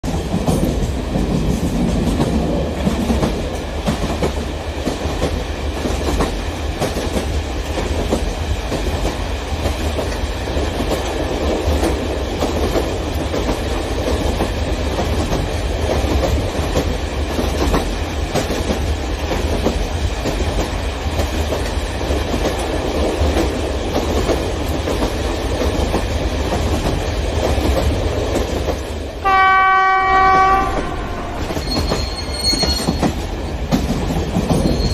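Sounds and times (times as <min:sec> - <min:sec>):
model train rolling on track: 0:00.1 - 0:34.9
train horn: 0:29.2 - 0:32.6.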